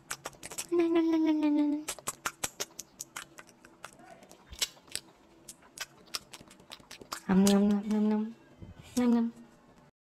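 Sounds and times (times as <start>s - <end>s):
person humming: 0.5s - 2.0s.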